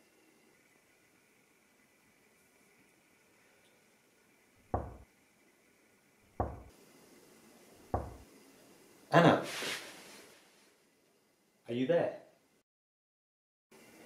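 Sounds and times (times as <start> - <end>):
knocking on door: 4.7 - 5.0, 6.4 - 6.7, 7.9 - 8.2.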